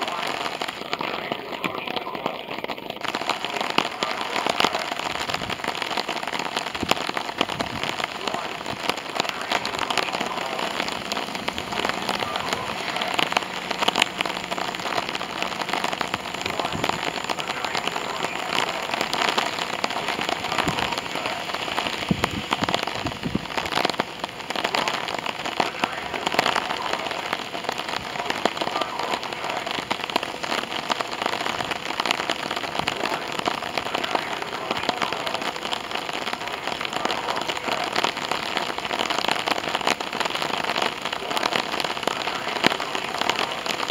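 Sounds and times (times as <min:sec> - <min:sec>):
rain patter: 0:00.0 - 0:43.9.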